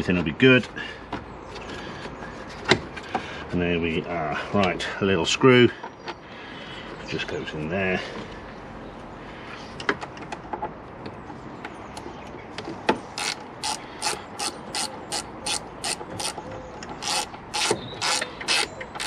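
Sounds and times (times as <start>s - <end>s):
ratcheting screwdriver clicking: 13.2s - 16.4s, 17.0s - 19.0s.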